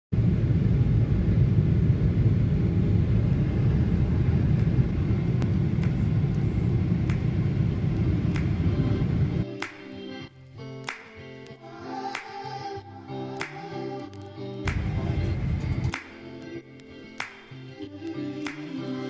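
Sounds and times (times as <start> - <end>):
airliner cabin engine rumble: 0.2 - 9.4, 14.7 - 16.0.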